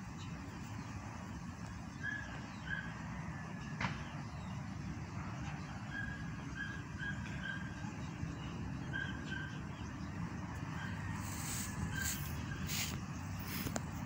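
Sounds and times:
whistled bird calls: 10.8 - 12.9.

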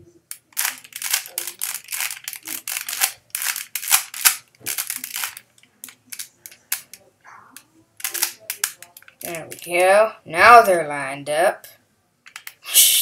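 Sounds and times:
plastic puzzle cube clicking: 0.3 - 7.0, 8.0 - 9.8, 12.2 - 12.6.

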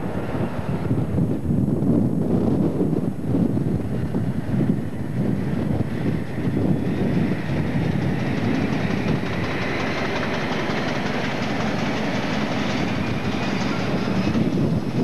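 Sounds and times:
diesel locomotive engine: 0.0 - 15.0
wheels clattering over rail joints: 6.6 - 15.0.

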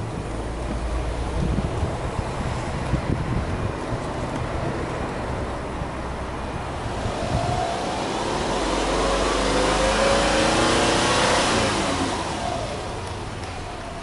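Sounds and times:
car engine revving: 5.4 - 14.0.

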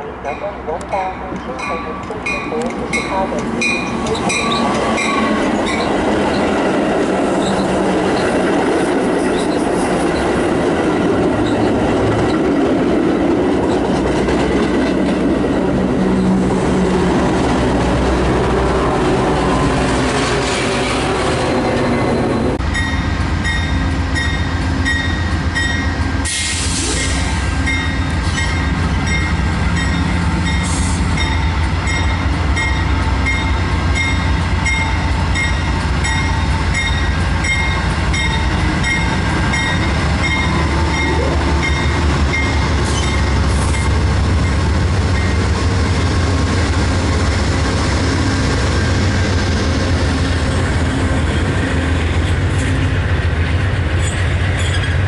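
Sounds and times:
train wheels rumbling on rails: 0.0 - 55.0
train wheel squeal: 3.8 - 6.6, 7.3 - 8.4, 9.2 - 10.4, 38.2 - 44.0, 54.0 - 55.0.

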